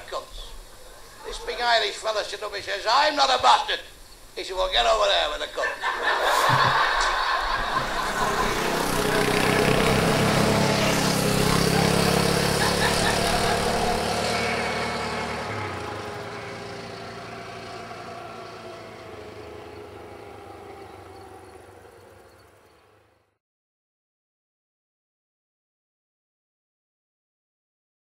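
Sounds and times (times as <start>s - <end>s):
motorcycles passing: 0.0s - 3.7s, 4.6s - 23.3s.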